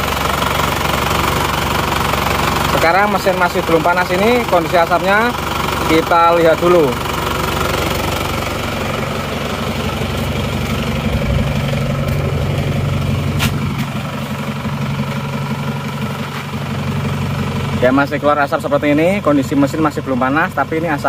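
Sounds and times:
diesel engine idling: 0.0 - 21.0.

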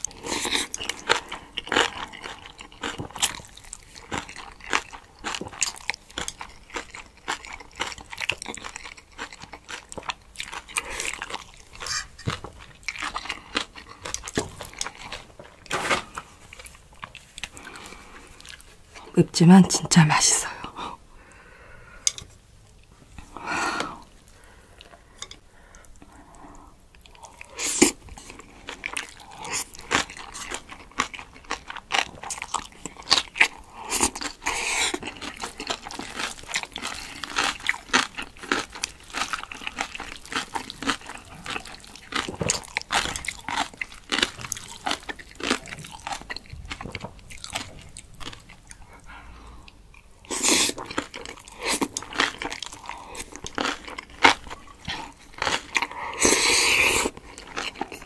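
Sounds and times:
chewing and crunching: 0.0 - 19.1, 24.2 - 58.0
slurping noodles: 55.8 - 57.2.

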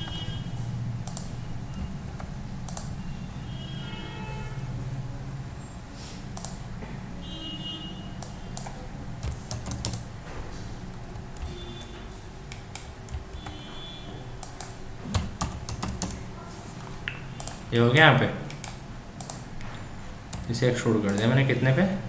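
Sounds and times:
keyboard and mouse clicking: 0.0 - 3.0, 6.3 - 6.7, 8.2 - 10.1, 10.9 - 13.8, 14.4 - 16.2, 16.8 - 17.7, 18.4 - 21.4
low steady hum: 0.0 - 22.0.

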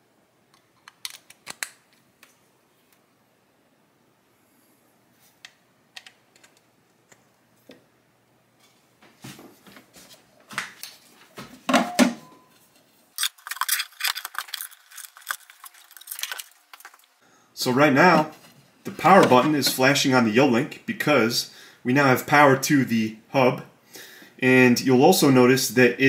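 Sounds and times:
plastic and cable handling: 12.6 - 17.2.

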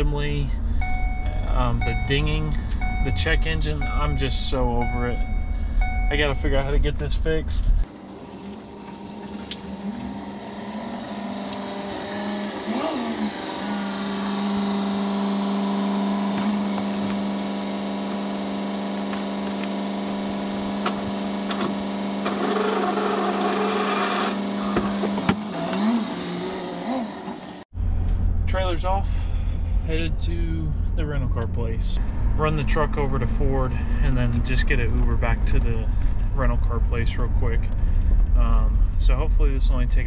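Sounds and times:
small electric motor humming: 7.9 - 27.6.

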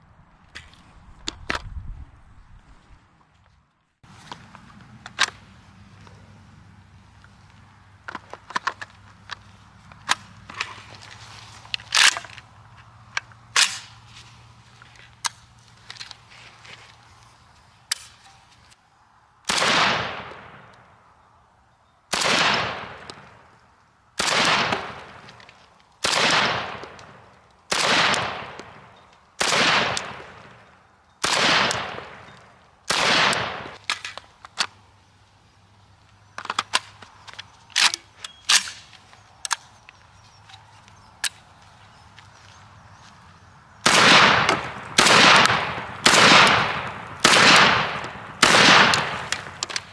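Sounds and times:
shotgun shots: 19.5 - 20.7, 22.1 - 23.2, 24.2 - 25.2, 26.0 - 30.6, 31.2 - 32.3, 32.9 - 33.8, 43.8 - 49.6.

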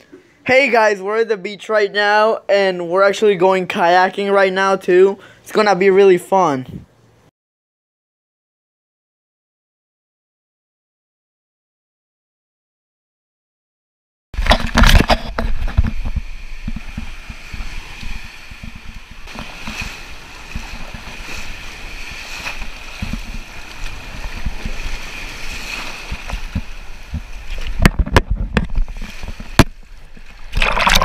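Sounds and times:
wind buffeting microphone: 14.4 - 30.3
breaking surf: 14.4 - 31.0
sharp knocks or splashes: 14.4 - 31.0
water sloshing around kayak: 14.4 - 31.0.

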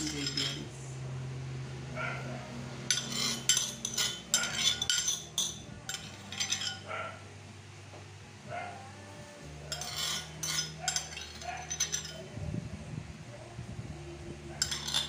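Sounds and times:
metal spoon scraping a dish: 0.0 - 0.7, 2.8 - 6.9, 9.7 - 12.2, 14.6 - 15.0.

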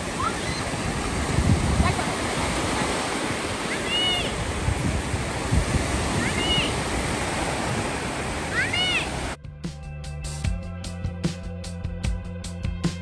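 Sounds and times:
waves breaking in shallows: 0.0 - 9.4.

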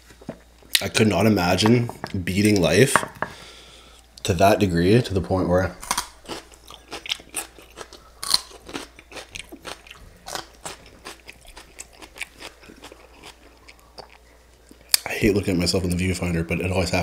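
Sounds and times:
crisp crunching of celery: 5.8 - 15.0.

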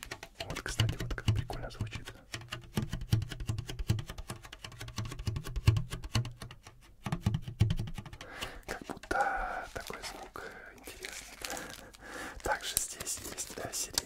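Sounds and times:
paper crinkling: 8.7 - 14.0.

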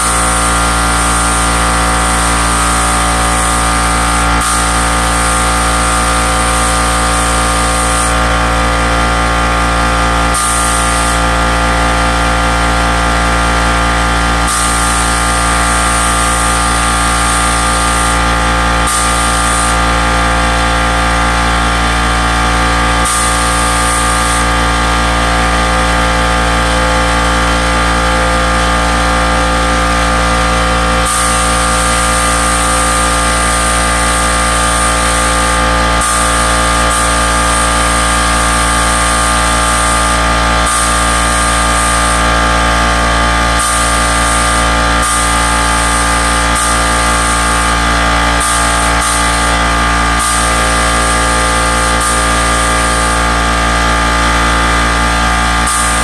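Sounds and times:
spray gun hissing: 0.0 - 8.2, 10.3 - 11.2, 14.5 - 18.2, 18.8 - 19.8, 23.0 - 24.5, 31.0 - 42.2, 43.6 - 47.8, 48.4 - 49.6, 50.2 - 53.3, 55.6 - 56.0
loud droning hum: 0.0 - 56.0.

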